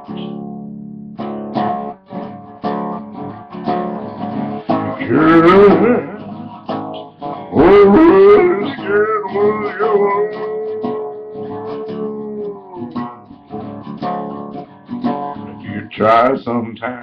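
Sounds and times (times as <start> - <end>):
acoustic guitar strumming: 0.0 - 17.0
man singing held notes: 7.5 - 13.0.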